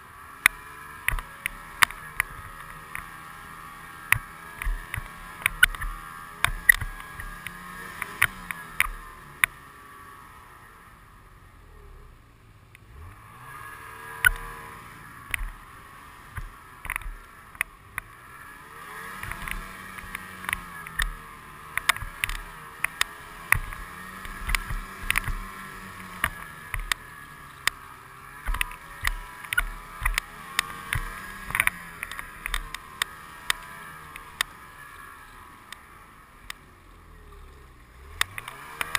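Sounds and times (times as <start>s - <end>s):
snowmobile engine running: 0.0s - 11.0s, 11.6s - 38.9s.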